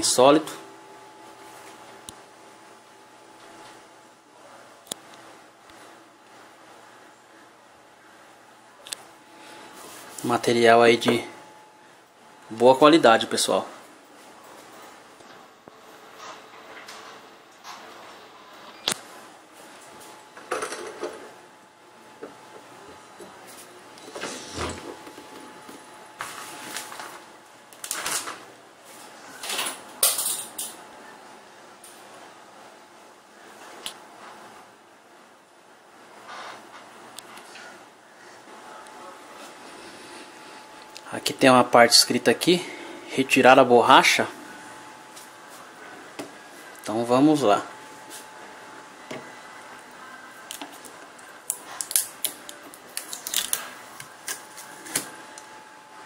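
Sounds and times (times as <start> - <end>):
objects scraping and rustling: 9.4 - 10.4, 23.2 - 27.3.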